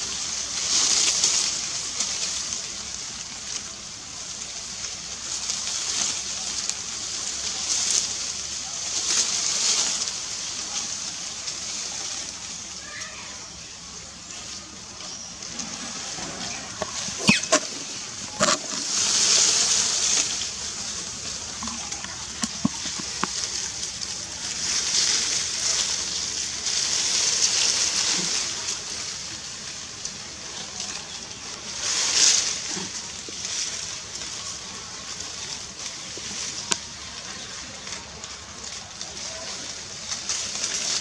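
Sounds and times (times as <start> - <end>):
sharp clicks and crackles: 15.4 - 28.5.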